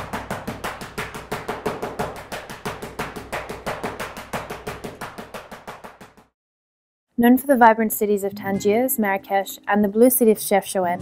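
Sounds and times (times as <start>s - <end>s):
sticks beating on cloth-covered bowl: 0.0s - 6.2s.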